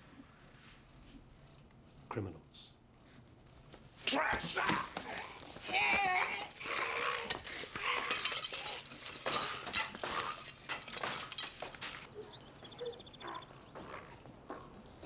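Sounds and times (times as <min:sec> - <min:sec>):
things crashing and breaking: 0:05.7 - 0:12.1
small bird trilling and chirping: 0:12.1 - 0:14.7.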